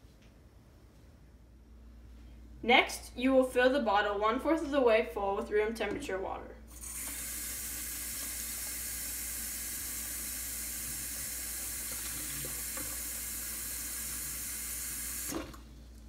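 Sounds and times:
tap water running into plastic bottle: 0:06.7 - 0:15.7.

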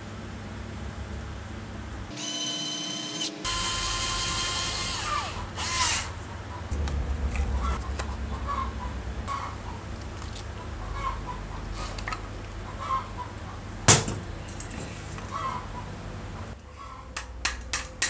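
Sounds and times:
electric screwdriver whirring: 0:02.2 - 0:06.1.

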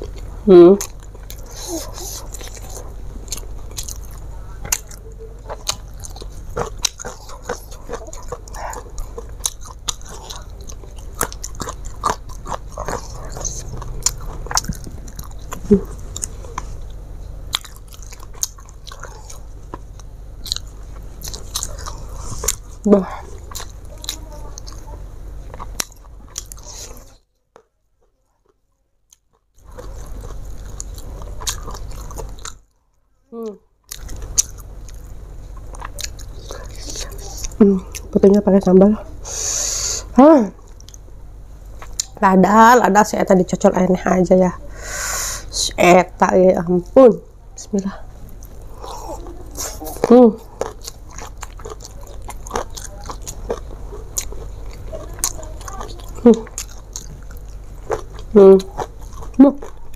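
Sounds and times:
person chewing with mouth clicks: 0:00.0 - 0:32.7, 0:33.4 - 0:38.5, 0:39.7 - 0:41.0, 0:41.8 - 0:42.2, 0:48.2 - 0:59.9
low steady hum: 0:00.0 - 0:59.9
crunching: 0:29.1 - 0:32.7, 0:48.2 - 0:59.9.

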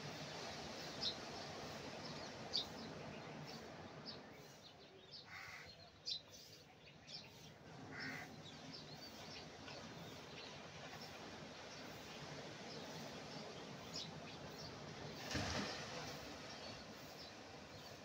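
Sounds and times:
small waves breaking: 0:00.0 - 0:04.8, 0:07.4 - 0:18.0
small birds chirping: 0:00.8 - 0:18.0
longer lower bird calls: 0:00.9 - 0:11.2.

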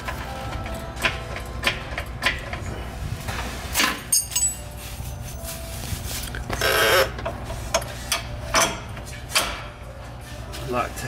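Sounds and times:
metallic clinks of hand tools: 0:04.1 - 0:04.7.

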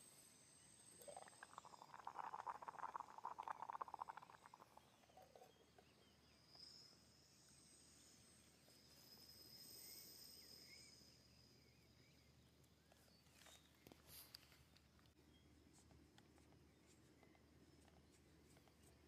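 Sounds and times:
insects chirring: 0:00.0 - 0:12.4.

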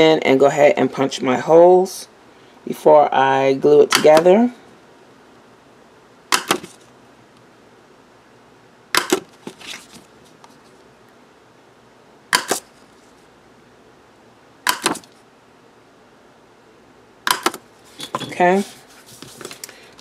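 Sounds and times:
paper punch clacking: 0:06.3 - 0:06.8, 0:09.0 - 0:09.3, 0:12.3 - 0:12.7, 0:14.7 - 0:15.1, 0:17.3 - 0:18.2
paper rustle: 0:09.3 - 0:10.8, 0:17.8 - 0:20.0.

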